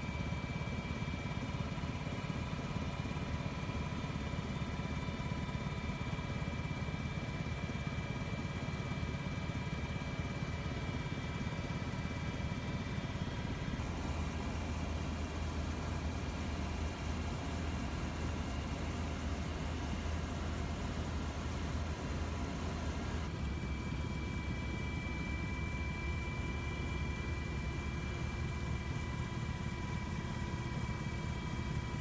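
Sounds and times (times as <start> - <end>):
aircraft engine drone: 13.0 - 30.0
high whine: 13.8 - 23.5.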